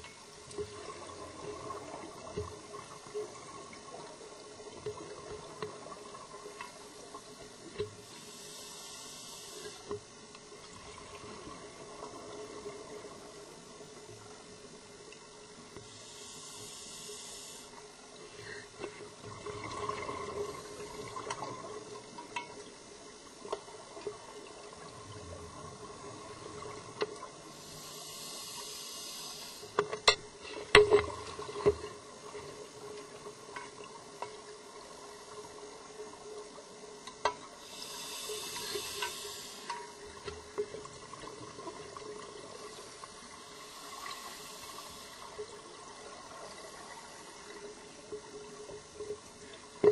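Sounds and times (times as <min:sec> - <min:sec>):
steady low hum: 0:00.0 - 0:49.9
sharp clicks underwater: 0:21.1 - 0:22.8, 0:29.6 - 0:32.0, 0:37.0 - 0:37.5, 0:38.4 - 0:40.7.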